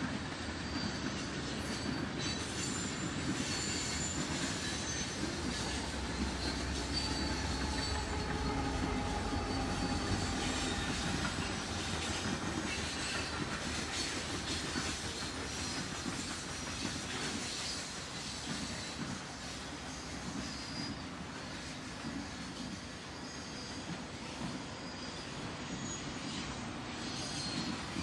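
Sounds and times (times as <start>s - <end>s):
train wheels on rails: 0.0s - 28.0s
high wheel squeal: 0.5s - 15.8s, 23.1s - 28.0s
diesel locomotive rumble: 4.5s - 15.4s.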